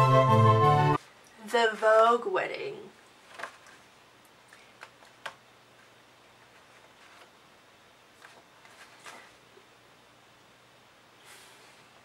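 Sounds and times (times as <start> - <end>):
page turning rustle: 3.2 - 3.9, 4.6 - 7.4, 8.1 - 9.4.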